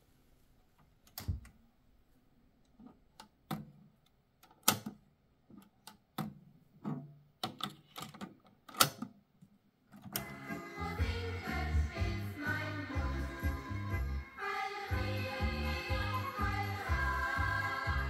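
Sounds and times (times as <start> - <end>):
cassette door springing open: 6.2 - 9.1
cassette being loaded: 10.0 - 10.8.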